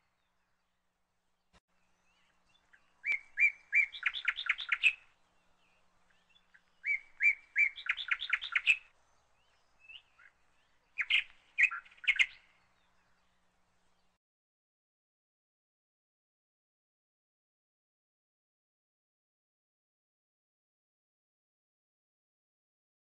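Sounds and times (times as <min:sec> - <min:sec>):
small songbird singing: 0:00.0 - 0:14.2.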